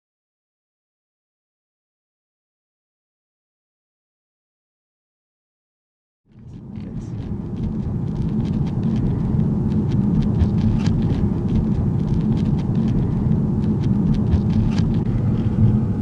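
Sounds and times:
car interior rumble: 6.3s - 16.0s
faint clicks and ticks: 6.4s - 15.8s.

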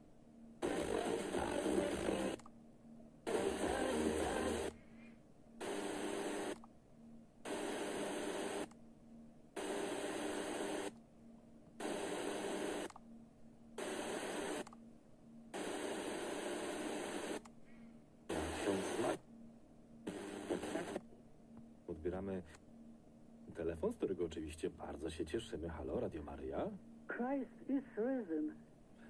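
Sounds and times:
weak radio station audio: 0.0s - 17.5s, 18.2s - 29.0s
faint distant radio stations: 0.3s - 4.7s, 18.2s - 28.7s
radio static hiss: 0.6s - 2.4s, 3.3s - 4.8s, 5.6s - 6.6s, 7.5s - 8.7s, 9.6s - 10.9s, 11.8s - 12.9s, 13.8s - 14.7s, 15.6s - 17.4s, 18.3s - 19.3s, 20.0s - 21.0s, 21.9s - 22.6s.

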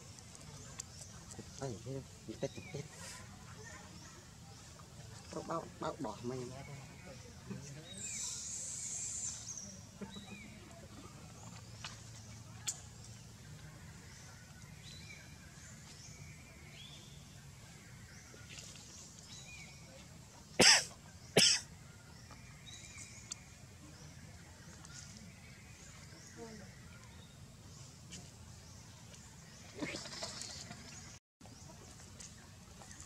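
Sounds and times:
person coughing: 20.6s - 21.6s.

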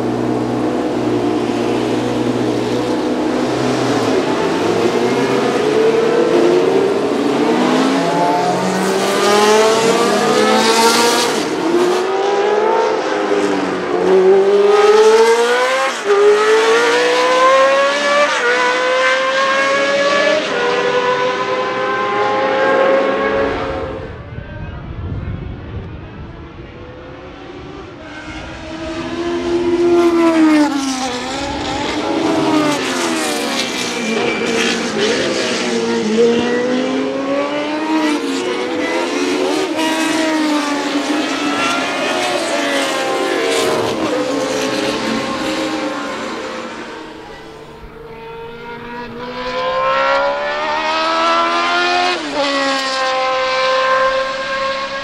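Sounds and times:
race car engine revving through gears: 0.0s - 24.1s, 27.3s - 55.0s.

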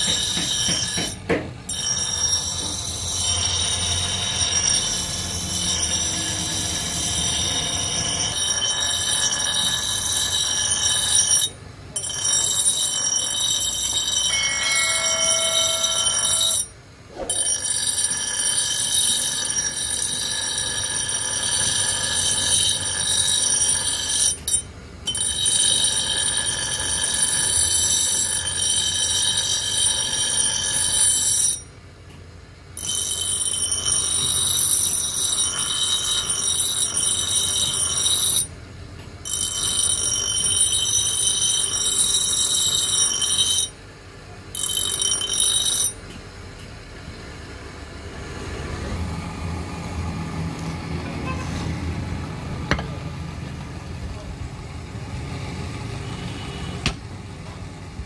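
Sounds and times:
grinder wheel grinding steel: 0.0s - 31.8s, 32.8s - 38.6s, 39.2s - 43.8s, 44.5s - 46.2s
grinder motor running: 1.7s - 16.7s.

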